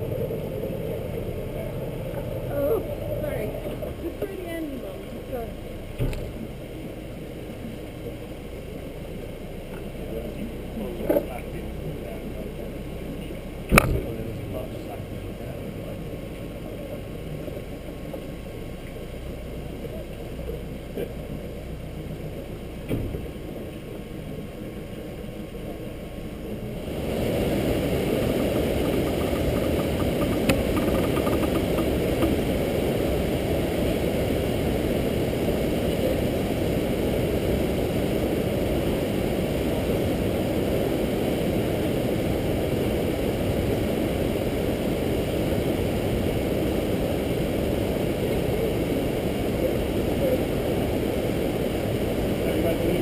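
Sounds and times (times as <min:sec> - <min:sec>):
boat engine running: 0:00.0 - 0:36.5.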